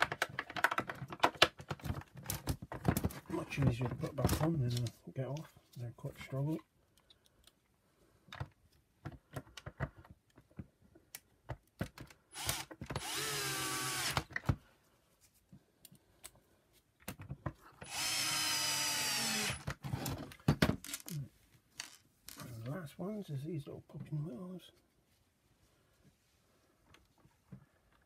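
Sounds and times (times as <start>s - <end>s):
parts clicking and knocking: 0.0s - 4.9s
cordless drill whining: 12.3s - 14.3s, 17.8s - 20.1s.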